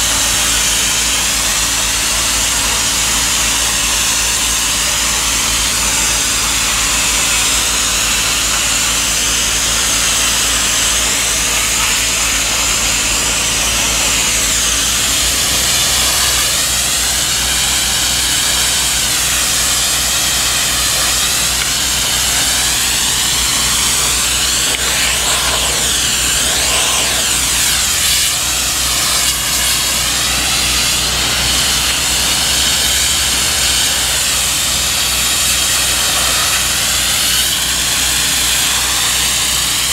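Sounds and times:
steam hissing from a lance: 0.0s - 39.9s
low steady machine hum: 10.8s - 36.5s.

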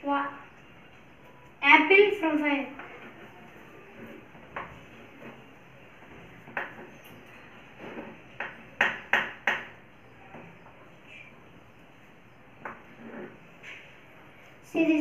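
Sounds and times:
chalk tapping on chalkboard: 6.4s - 7.0s, 7.8s - 9.8s.

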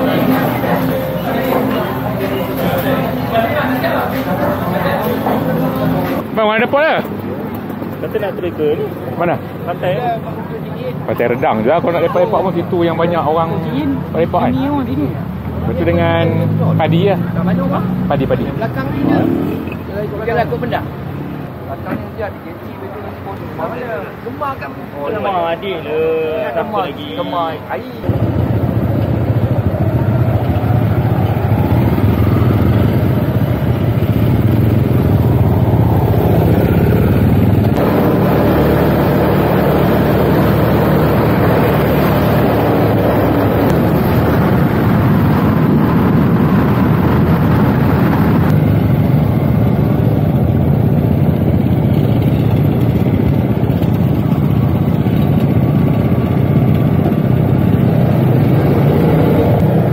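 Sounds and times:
motorcycle engine running: 28.0s - 59.9s
wind noise: 42.2s - 51.2s.

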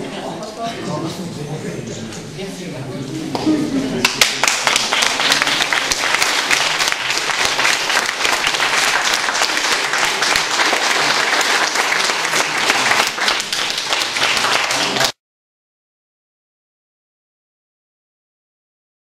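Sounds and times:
audience applauding: 4.0s - 15.2s.

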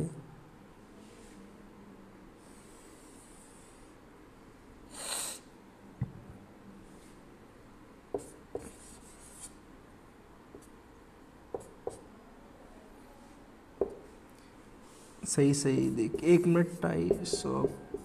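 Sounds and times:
marker tip tapping board: 8.1s - 8.7s, 11.5s - 12.1s, 13.8s - 14.0s, 16.0s - 18.0s
marker writing on whiteboard: 8.1s - 9.6s, 10.5s - 10.8s, 11.5s - 12.1s, 13.8s - 14.2s, 15.3s - 18.0s.

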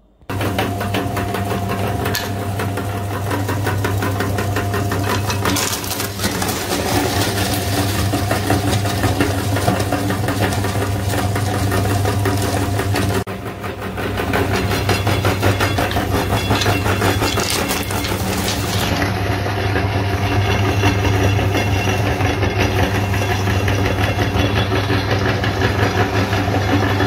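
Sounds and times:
meat grinder motor humming: 0.2s - 27.0s
candy cracking and rattling: 4.8s - 13.3s.

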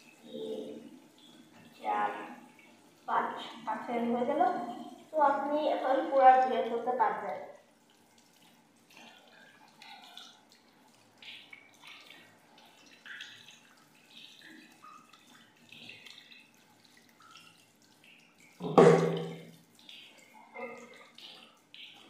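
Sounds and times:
tap water splashing on hands: 6.3s - 22.0s
loud knock: 18.6s - 19.4s.

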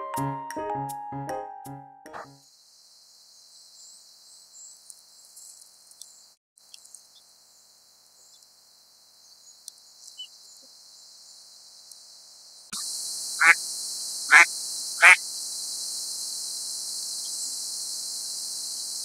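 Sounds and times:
steady high hiss: 6.8s - 19.0s.

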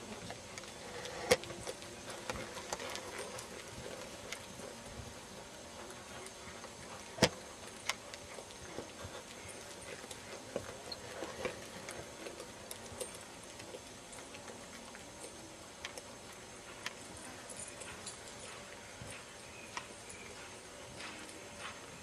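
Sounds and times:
horse hoofbeats on sand: 16.3s - 22.0s.

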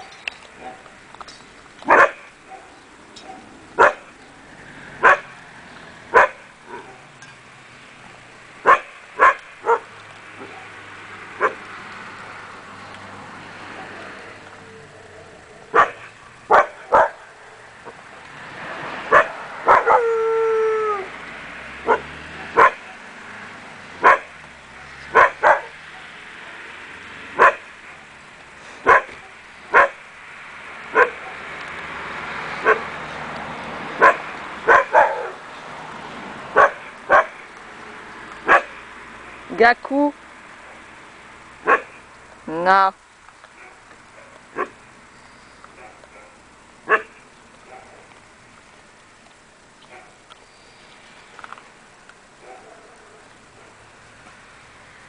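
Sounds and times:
dog barking: 1.9s - 4.1s, 5.0s - 5.3s, 6.1s - 7.1s, 8.6s - 10.8s, 11.4s - 11.6s, 15.7s - 18.0s, 19.1s - 20.0s, 21.8s - 23.1s, 24.0s - 26.2s, 27.4s - 27.7s, 28.8s - 30.0s, 30.9s - 31.4s, 32.6s - 32.9s, 34.0s - 35.4s, 36.6s - 37.4s, 38.4s - 38.8s, 41.6s - 42.0s, 43.6s - 44.8s, 45.8s - 48.1s, 49.9s - 50.2s, 52.4s - 53.2s
dog yelping: 19.1s - 21.1s, 21.8s - 23.0s, 34.0s - 35.4s.

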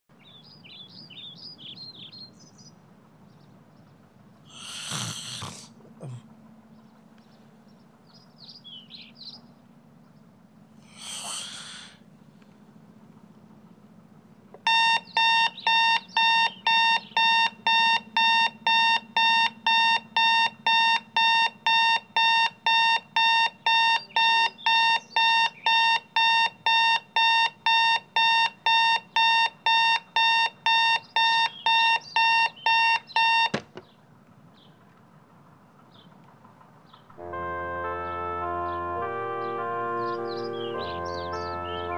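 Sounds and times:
alarm clock beeping: 14.7s - 33.5s.

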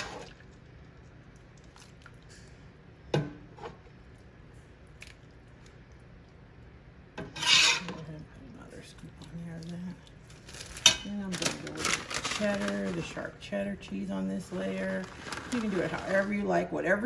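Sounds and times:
wet scraping rasp: 7.4s - 7.9s.

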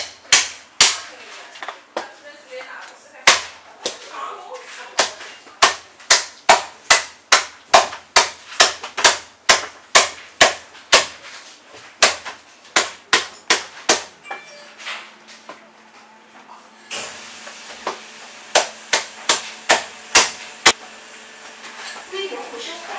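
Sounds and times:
cleaver chopping on wooden block: 5.0s - 11.2s, 18.5s - 20.8s.

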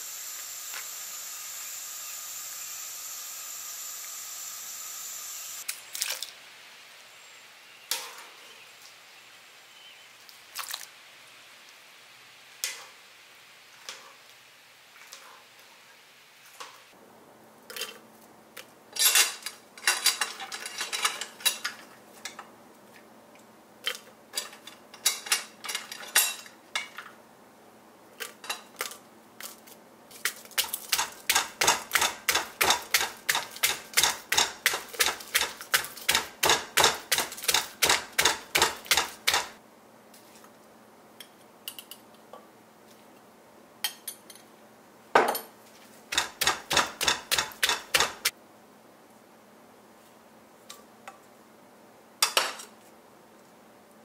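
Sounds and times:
pestle pounding in mortar: 30.6s - 39.6s, 46.1s - 48.3s.

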